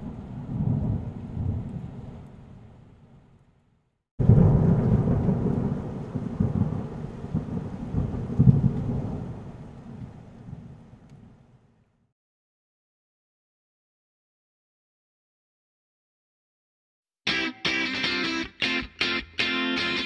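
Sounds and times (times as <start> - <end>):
thunder rumbling: 0.0 - 2.9, 4.2 - 11.4.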